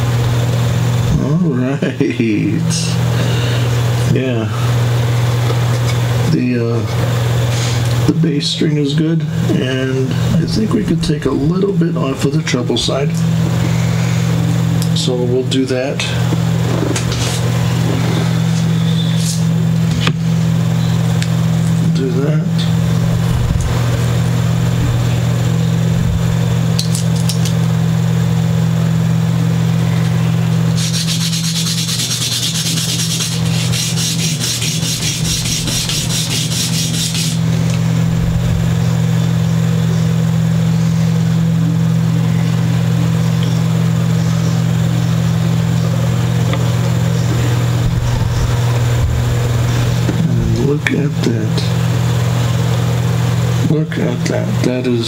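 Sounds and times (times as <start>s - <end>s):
steady low hum: 0.0s - 55.0s
guitar nut being sanded: 30.8s - 37.5s.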